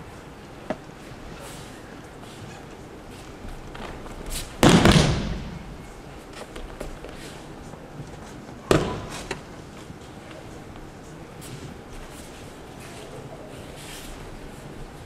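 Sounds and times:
faint footsteps on mat: 5.6s - 15.0s.

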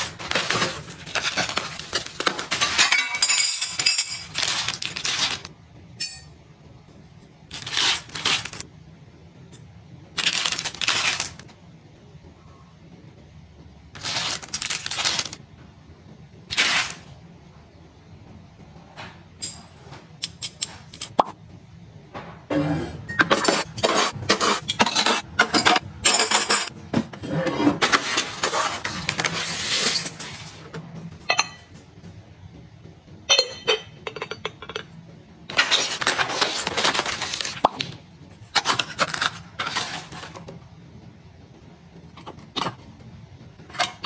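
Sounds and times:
plastic packaging rustling: 0.0s - 2.8s, 3.7s - 5.5s, 7.5s - 8.6s, 14.0s - 15.4s, 35.5s - 37.8s
ceramic clinking and knocking: 33.3s - 34.9s.

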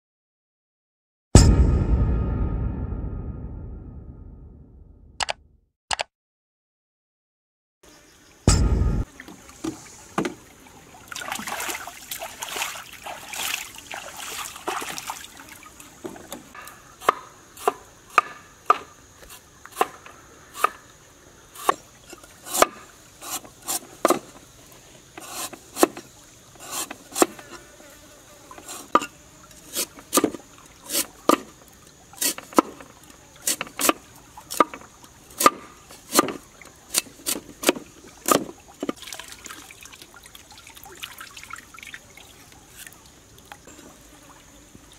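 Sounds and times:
high insect buzz: 13.6s - 16.3s, 25.2s - 34.4s, 43.6s - 44.9s
cleaver chopping on wooden board: 35.4s - 38.5s.

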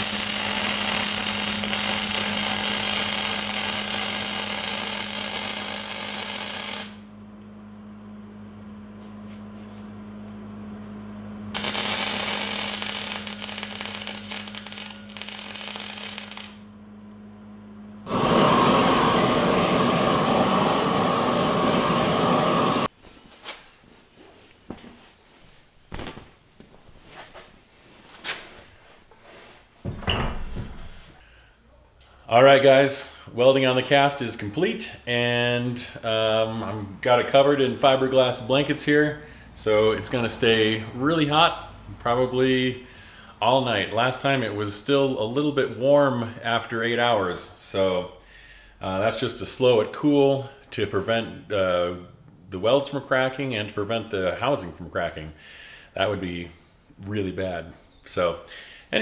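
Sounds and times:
welding arc crackling: 0.0s - 7.1s, 11.5s - 16.7s
steady hum: 0.0s - 22.9s
blanket rustling and knocks: 24.0s - 28.5s.

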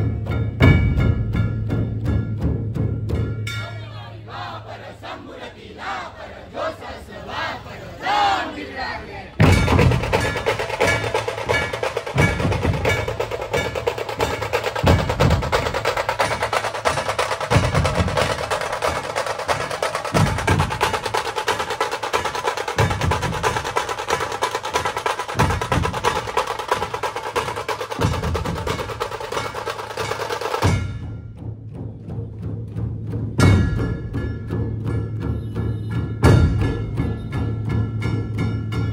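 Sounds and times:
heavy barrel drum beats: 0.0s - 4.1s, 9.4s - 38.9s
kettle drums rolling: 9.4s - 31.1s.

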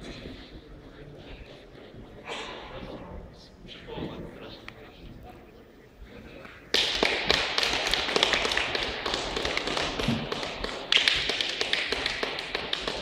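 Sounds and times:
spectators applauding: 6.7s - 13.0s.

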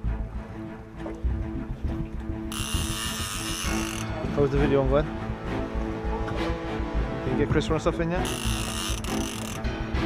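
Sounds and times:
background music: 0.0s - 10.0s
fishing reel buzzing: 2.5s - 4.2s, 8.2s - 9.7s.

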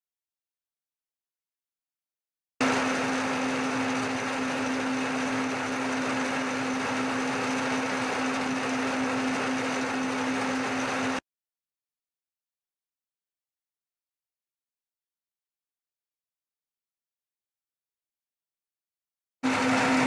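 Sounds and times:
milling machine motor hum: 2.6s - 11.2s, 19.4s - 20.0s.

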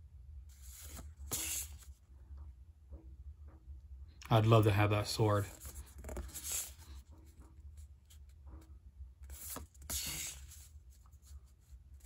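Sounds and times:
cards sliding and shuffling: 0.5s - 1.9s, 5.5s - 7.0s, 9.2s - 11.4s
papery swish: 0.6s - 1.8s, 9.3s - 10.7s.

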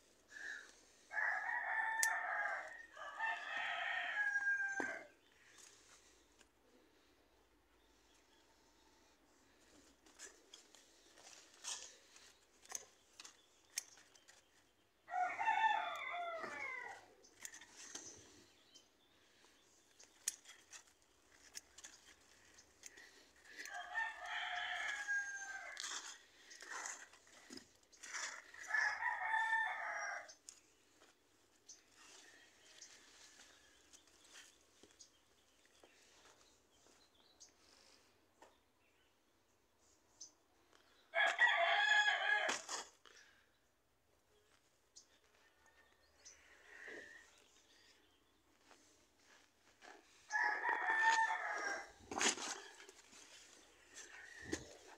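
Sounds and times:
rooster crowing: 1.1s - 5.2s, 15.1s - 17.1s, 23.6s - 26.1s, 28.6s - 30.4s, 41.1s - 42.7s, 50.3s - 51.9s
leaves rustling: 48.6s - 54.9s.

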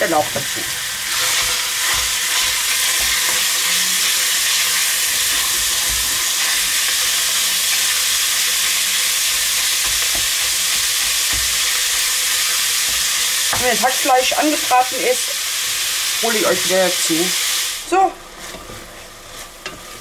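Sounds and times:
meat sizzling in oil: 0.0s - 20.0s
spatula knocking against pot: 11.0s - 11.7s.

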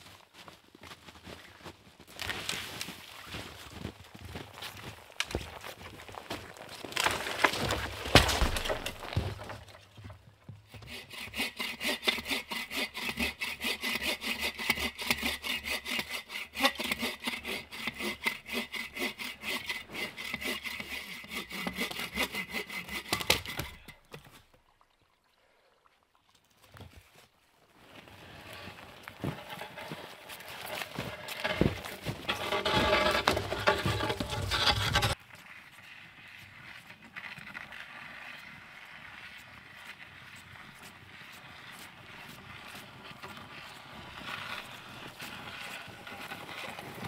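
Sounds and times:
wood cracking: 5.1s - 10.2s, 29.1s - 35.2s
hand saw cutting wood: 6.8s - 9.8s, 10.7s - 24.2s, 28.2s - 35.2s, 38.9s - 47.0s.

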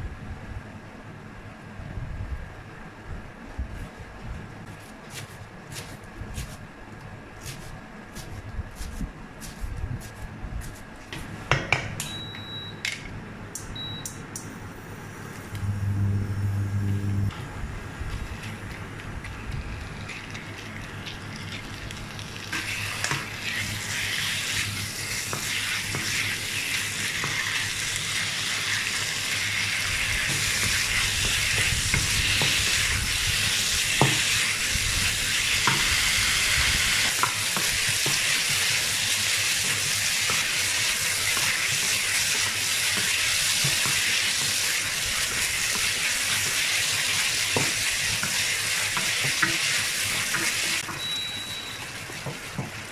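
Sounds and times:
chicken sizzling in a wok: 19.3s - 52.9s.

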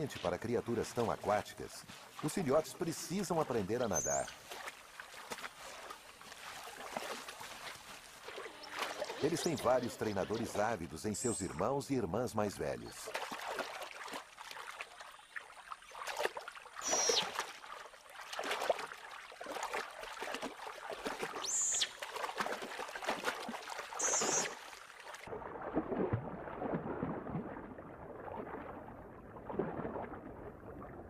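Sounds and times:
otters splashing in water: 0.0s - 11.9s, 12.6s - 31.0s
underwater bubbling: 23.9s - 31.0s.

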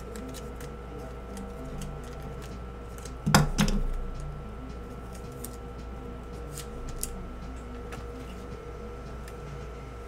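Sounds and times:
trading cards rustling: 0.0s - 3.2s
faint steady hum: 0.0s - 10.0s.

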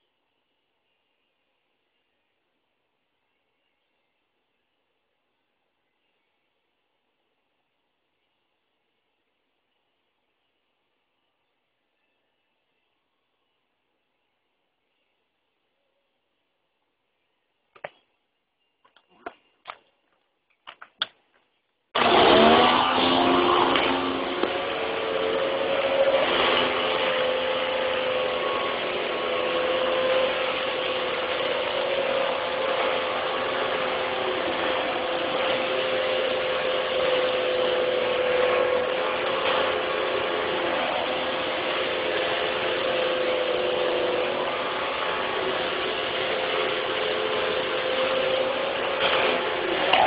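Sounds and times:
small electric motor whining: 22.0s - 50.0s.

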